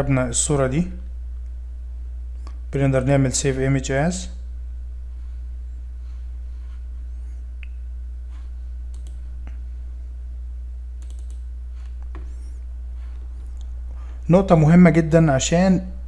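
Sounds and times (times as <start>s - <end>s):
steady low hum: 0.0s - 16.0s
computer mouse clicks: 8.9s - 9.3s, 11.0s - 12.3s.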